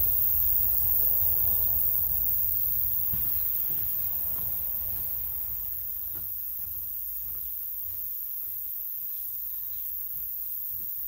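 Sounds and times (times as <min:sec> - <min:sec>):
high hiss: 0:00.0 - 0:07.8
low rumble: 0:01.3 - 0:06.6
footsteps on steel mesh: 0:03.1 - 0:11.0.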